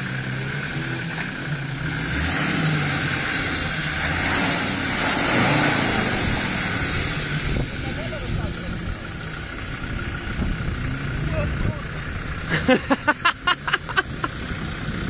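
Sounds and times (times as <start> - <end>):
car engine revving: 0.0 - 15.0
tyres churning in mud: 0.0 - 15.0.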